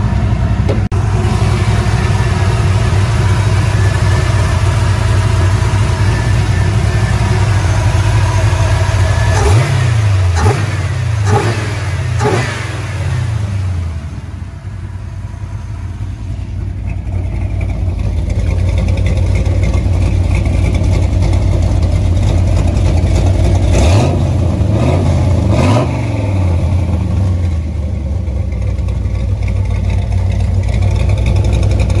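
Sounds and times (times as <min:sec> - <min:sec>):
engine idling: 0:00.0 - 0:32.0
engine revving: 0:00.7 - 0:15.0, 0:22.3 - 0:27.7.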